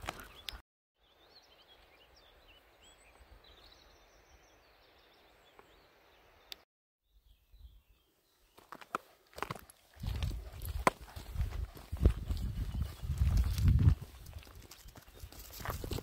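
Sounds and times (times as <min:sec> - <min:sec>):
faint birdsong chirps: 0:00.0 - 0:09.2, 0:12.2 - 0:15.5
footsteps on gravel: 0:08.6 - 0:16.0.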